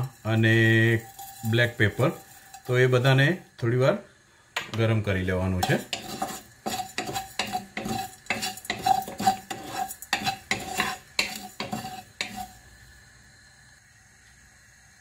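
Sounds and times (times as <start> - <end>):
spatula scraping a frying pan: 0.0 - 3.4, 5.6 - 12.7.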